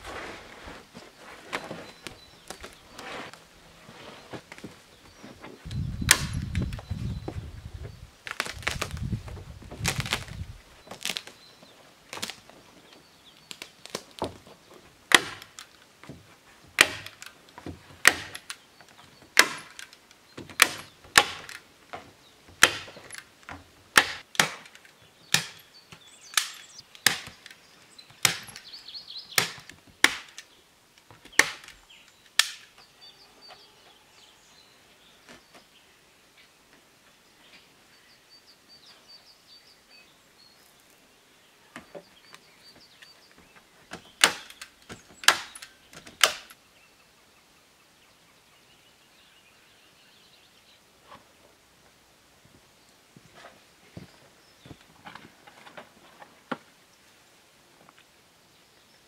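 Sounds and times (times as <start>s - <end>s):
faint bird chirps: 4.9s - 8.1s, 31.8s - 46.0s
axe chopping wood: 6.0s - 6.8s, 15.1s - 15.6s, 16.8s - 18.5s, 19.3s - 22.0s, 22.6s - 25.7s, 26.3s - 27.5s, 28.2s - 28.7s, 29.3s - 30.4s, 31.2s - 31.8s, 43.9s - 46.5s.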